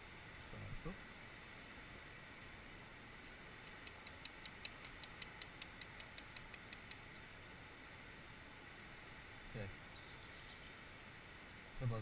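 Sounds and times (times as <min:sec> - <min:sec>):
rapid light high clicks: 0:03.2 - 0:07.0.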